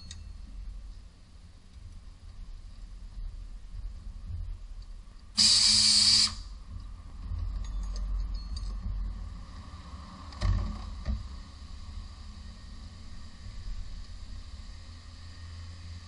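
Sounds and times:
compressed air hiss: 5.4s - 6.5s.

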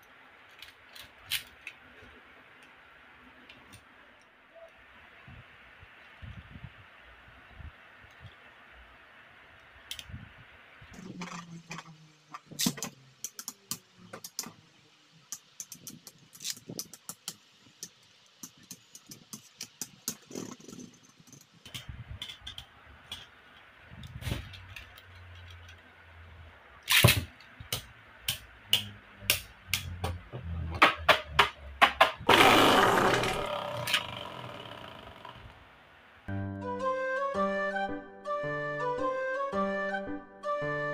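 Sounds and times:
loud rattling: 31.8s - 35.6s.

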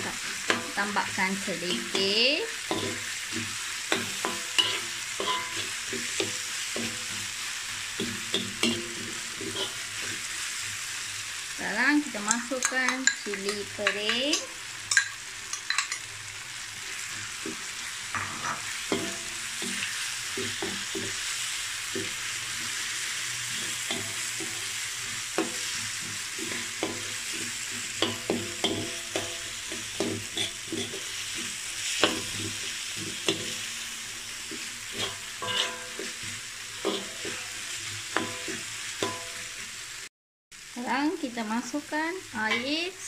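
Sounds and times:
spatula scraping metal wok: 0.0s - 11.0s, 16.9s - 39.7s
vegetables sizzling in oil: 0.0s - 43.0s.

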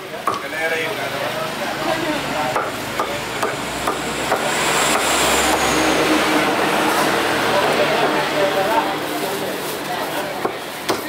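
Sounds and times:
steady background noise: 0.0s - 11.0s
cleaver chopping on wooden block: 0.2s - 0.5s.

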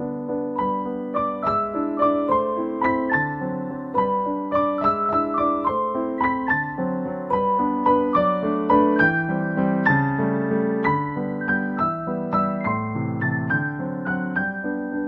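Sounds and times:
calm piano music: 0.0s - 15.0s.

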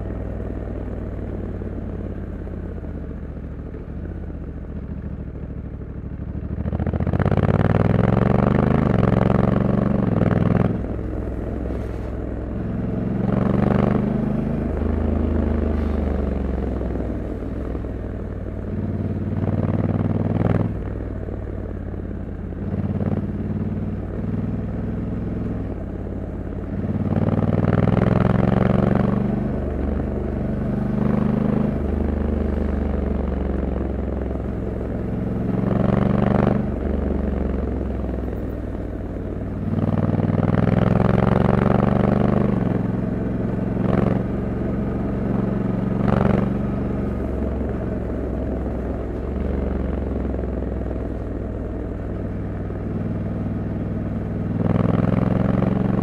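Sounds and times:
motorcycle engine revving: 6.1s - 56.0s.

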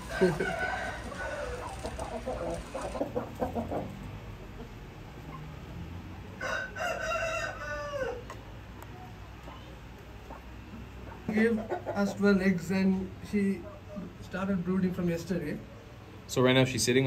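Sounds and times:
rooster crowing: 0.0s - 3.0s, 6.4s - 8.3s
chickens clucking: 0.0s - 5.7s, 8.2s - 14.2s.

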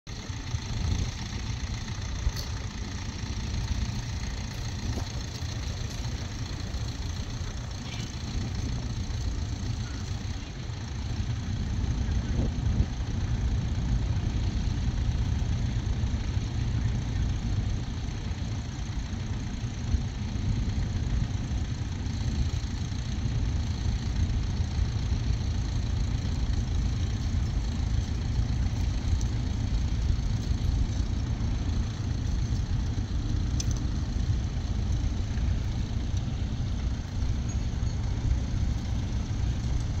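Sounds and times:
tractor engine running: 0.0s - 40.0s.

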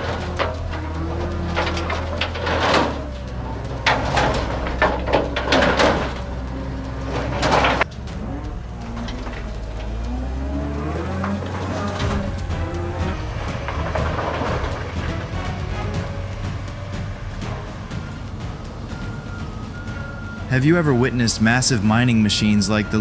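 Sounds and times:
loud clattering knocks: 0.0s - 10.1s, 11.0s - 18.9s
background music: 0.0s - 23.0s
heavy machine engine hum: 0.0s - 23.0s.

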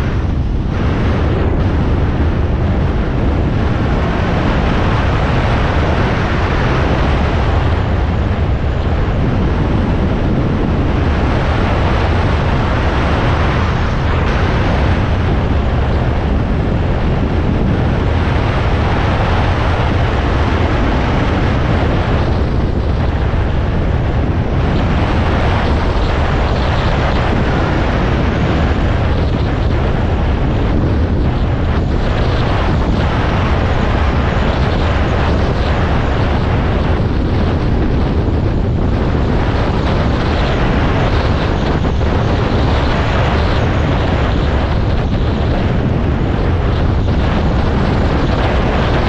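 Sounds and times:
wind rushing over microphone: 0.0s - 49.0s.

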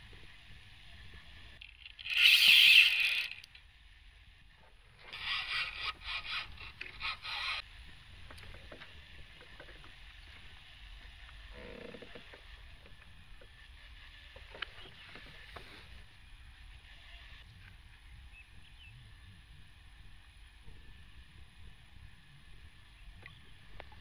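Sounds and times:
rapid clicking and scraping: 1.5s - 3.7s.

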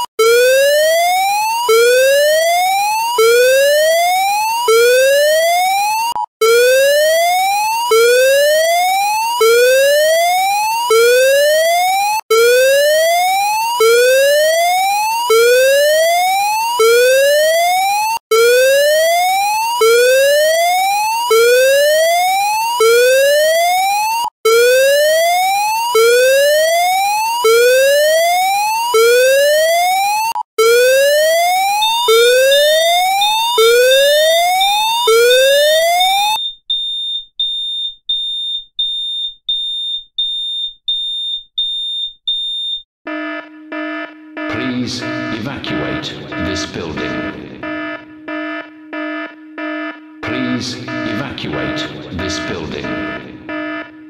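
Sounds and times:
fire alarm rising whoop tone: 0.0s - 38.6s, 41.2s - 54.0s
high-pitched beeping: 43.1s - 54.0s.

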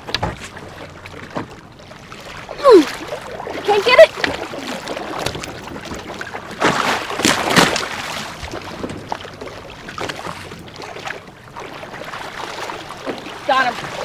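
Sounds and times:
water splashing against boat hull: 0.0s - 14.0s.

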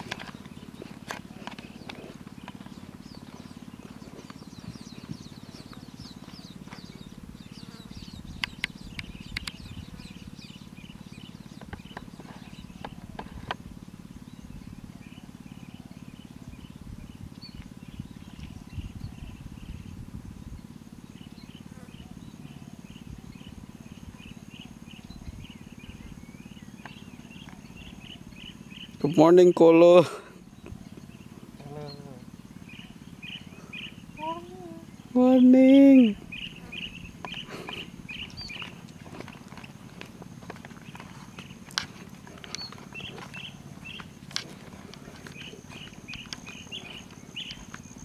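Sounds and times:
steady low rumble: 0.0s - 29.0s, 36.1s - 48.0s
birds chirping: 0.0s - 48.0s
sharp clicks: 8.4s - 9.6s.

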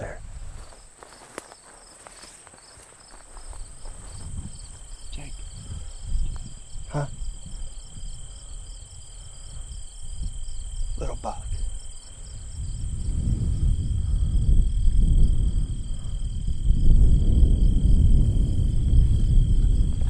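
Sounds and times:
crickets and insects chirping: 0.0s - 20.0s
low rumble: 12.6s - 20.0s.

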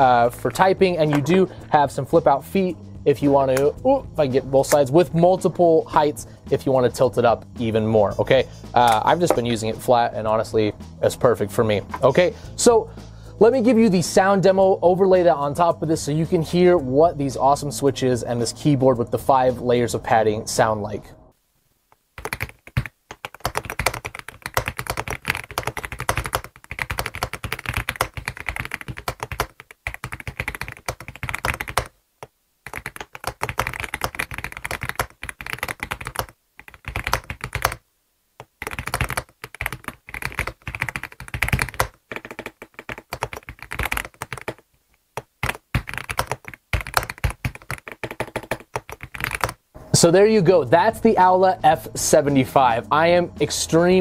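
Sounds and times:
mechanical keyboard typing: 22.2s - 31.9s, 32.7s - 37.8s, 38.4s - 44.6s, 45.2s - 49.6s.

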